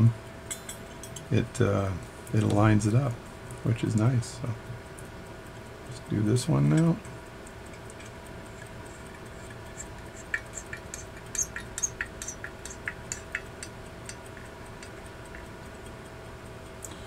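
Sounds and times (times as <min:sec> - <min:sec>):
clock ticking fast: 0:05.8 - 0:16.8.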